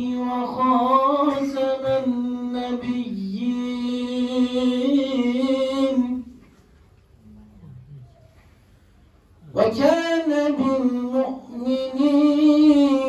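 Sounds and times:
man reciting melodically: 0.0 - 6.5, 9.4 - 13.0.

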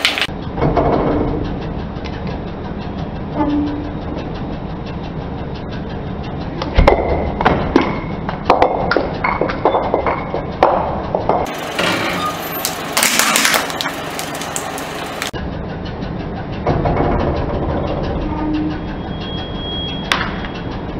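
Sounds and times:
glass crunching and crackling: 11.5 - 15.3
glass bottle cracking under tyre: 11.7 - 14.6.

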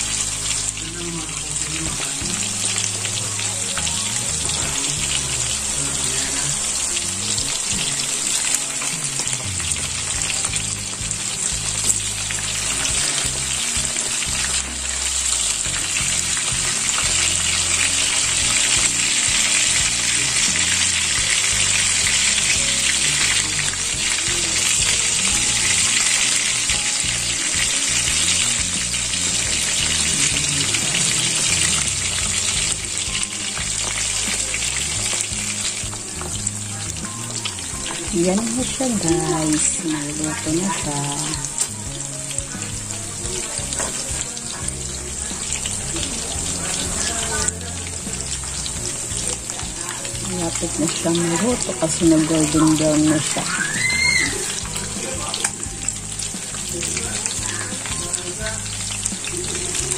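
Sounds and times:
fish sizzling in oil: 0.0 - 59.9.

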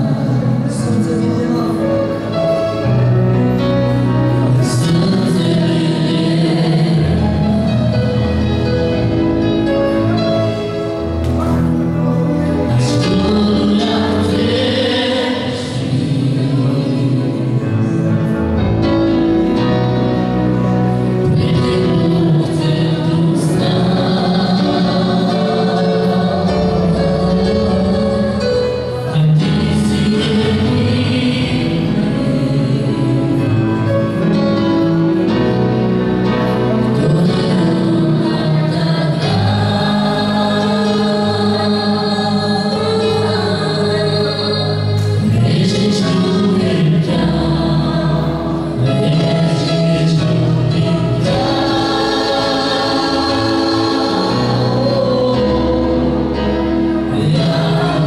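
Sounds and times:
keyboard: 0.0 - 58.0
voices singing together: 4.3 - 9.4, 12.4 - 18.7, 19.3 - 34.3, 36.4 - 58.0
woman singing lead: 37.0 - 49.2.

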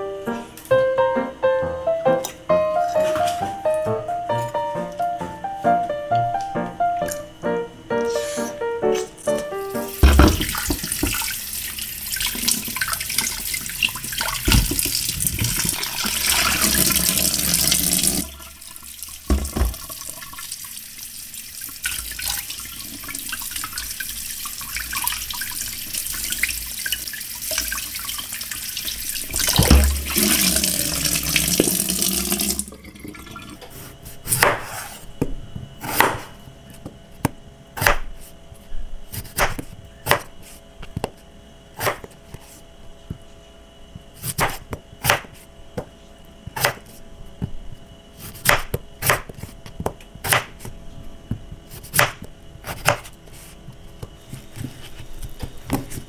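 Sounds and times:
tap running: 9.4 - 20.7, 21.6 - 33.7
knife knocking on chopping board: 10.0 - 11.2, 19.3 - 19.8
water splashing in a bowl: 10.0 - 33.6.

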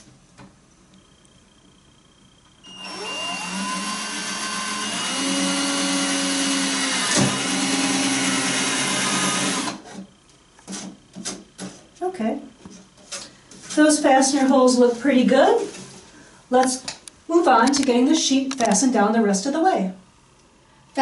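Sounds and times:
power drill whining: 2.6 - 9.9.

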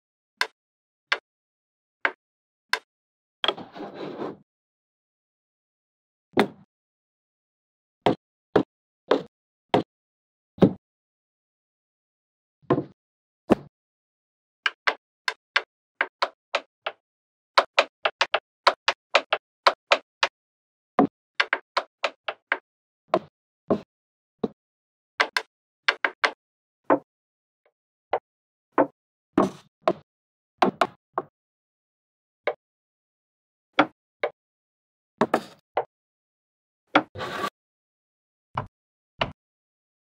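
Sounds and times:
wooden blocks clicking and knocking: 17.6 - 20.0, 21.4 - 22.6.

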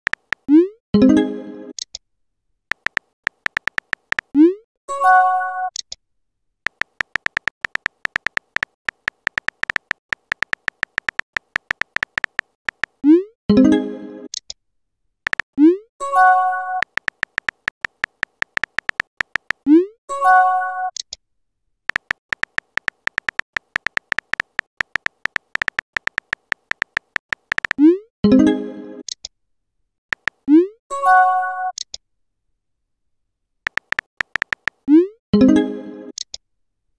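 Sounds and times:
keyboard tap clicks: 0.1 - 0.4, 2.7 - 4.3, 6.7 - 13.0, 15.3 - 15.5, 16.8 - 19.6, 21.9 - 27.8, 30.1 - 30.4, 33.7 - 34.8.

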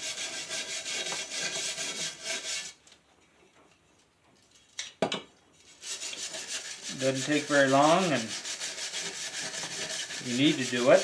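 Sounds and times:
brush scrubbing metal blade: 0.0 - 2.8, 5.6 - 11.0.

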